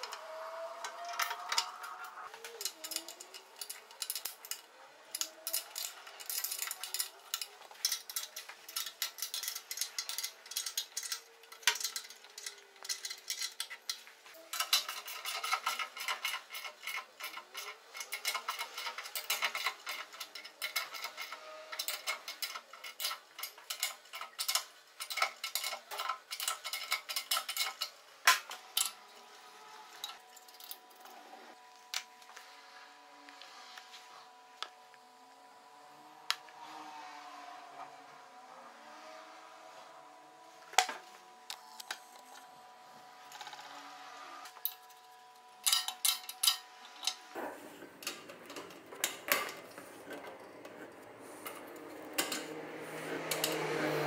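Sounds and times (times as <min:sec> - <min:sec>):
metal parts and tools clinking: 0:00.0 - 0:31.3, 0:44.5 - 0:47.3, 0:47.9 - 0:54.0.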